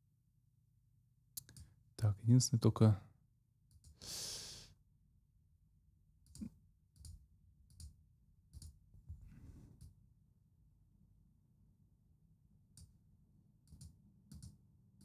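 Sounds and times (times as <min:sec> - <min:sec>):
computer mouse clicks: 0:01.4 - 0:01.7, 0:06.2 - 0:08.8, 0:13.6 - 0:14.6
breath out: 0:04.0 - 0:04.7.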